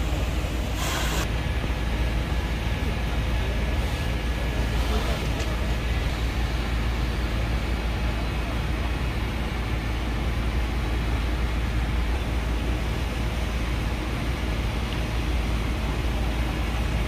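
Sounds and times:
hoses spraying: 0:00.0 - 0:01.3, 0:03.7 - 0:07.2
fire truck engines rumbling: 0:00.0 - 0:17.0.

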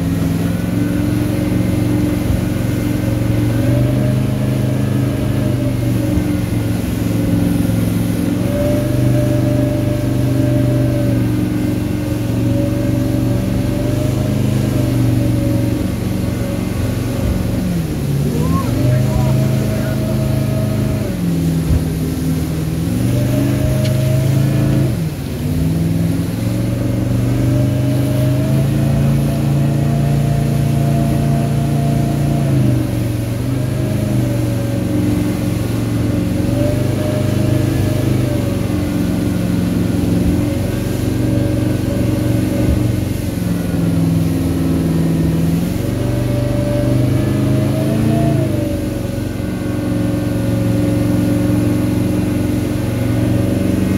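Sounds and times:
outboard motor: 0:00.0 - 0:53.9
rushing churning water: 0:00.0 - 0:53.9.

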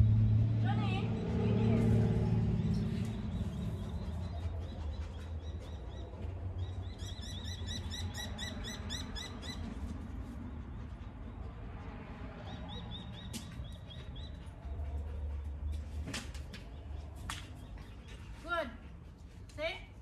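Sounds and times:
steady low rumble: 0:00.0 - 0:12.5
bird chirping: 0:02.6 - 0:09.8, 0:12.4 - 0:16.0.

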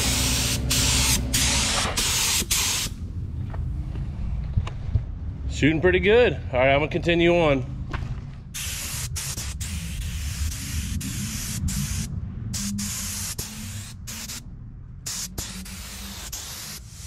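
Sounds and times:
air spray gun hissing: 0:00.0 - 0:03.0, 0:08.6 - 0:14.4, 0:15.1 - 0:17.0.

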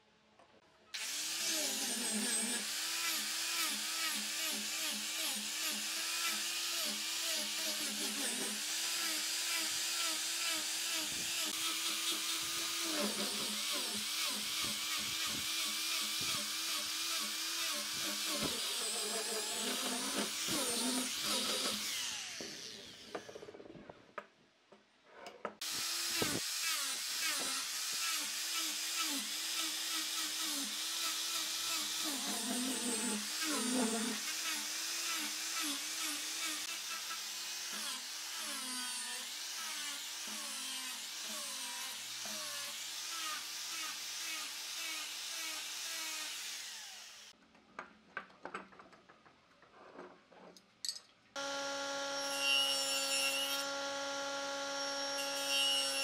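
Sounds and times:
angle grinder sanding wood: 0:01.0 - 0:23.0, 0:25.6 - 0:47.2.

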